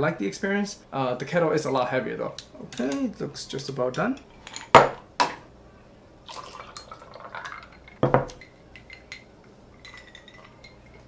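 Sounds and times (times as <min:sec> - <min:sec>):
coffee pouring over ice: 0:06.3 - 0:08.1
glass carafe knocking on counter: 0:08.0 - 0:08.3.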